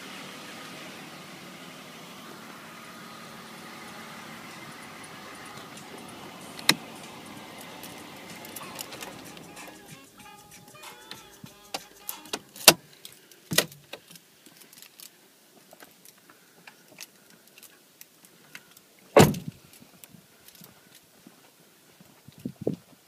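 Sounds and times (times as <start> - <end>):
car door shutting: 4.3 - 9.9, 19.2 - 19.5
handling clicks and knocks: 7.6 - 9.8
keys jangling: 7.6 - 12.7.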